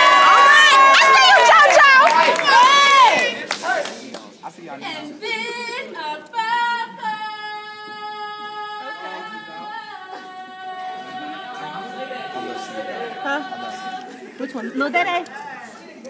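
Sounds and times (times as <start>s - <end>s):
woman singing a cappella: 4.9s - 15.2s.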